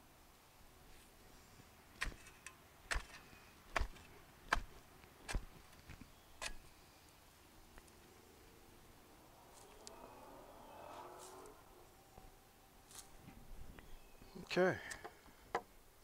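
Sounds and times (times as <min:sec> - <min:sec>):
spade chopping into soil: 0:02.0 - 0:06.7.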